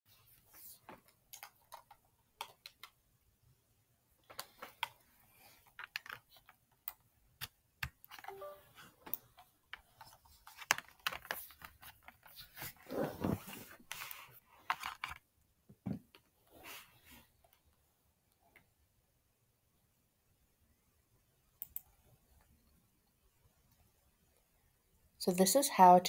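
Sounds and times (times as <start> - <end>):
computer mouse clicks: 1.3 - 3.0, 21.6 - 21.9.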